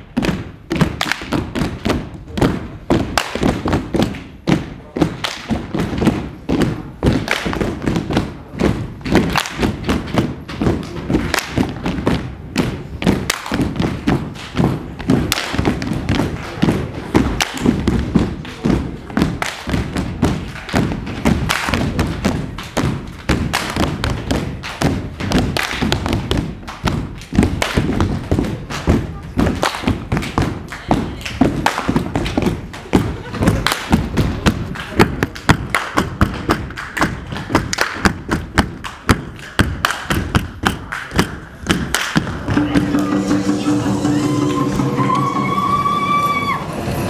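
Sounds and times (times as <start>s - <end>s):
heavy thumping beat: 0.0s - 46.2s
music: 42.2s - 47.0s.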